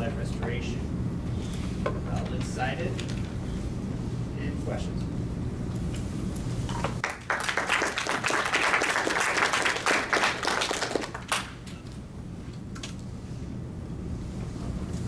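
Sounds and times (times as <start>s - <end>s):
audience applauding: 7.0s - 11.6s.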